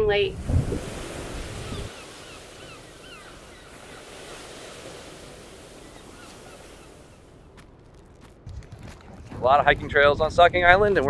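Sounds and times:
ocean surf rushing: 0:00.0 - 0:07.5.

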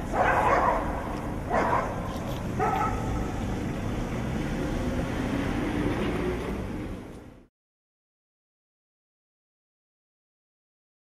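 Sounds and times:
distant street traffic hum: 0:00.0 - 0:07.5
dog barking: 0:00.1 - 0:03.2.

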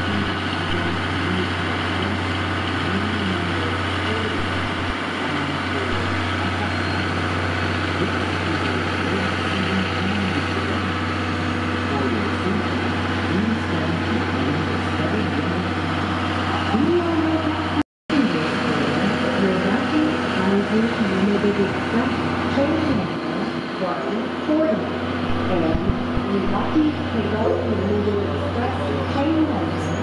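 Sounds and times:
electric train hum: 0:00.0 - 0:30.0
faint voices: 0:00.0 - 0:30.0.

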